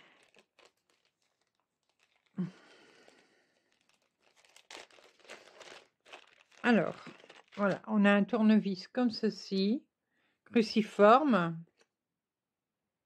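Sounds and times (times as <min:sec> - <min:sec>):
plastic bag rustling: 0:00.0 - 0:08.0.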